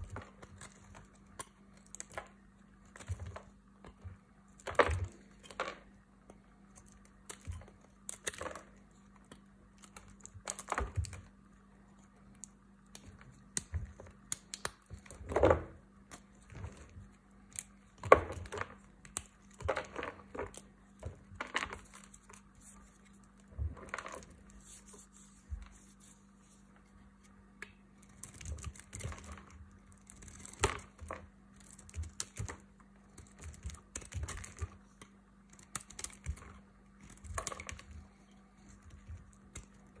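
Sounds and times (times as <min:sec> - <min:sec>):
soap crumbling cracks and crunches: 0:00.0 - 0:24.6, 0:27.6 - 0:40.0.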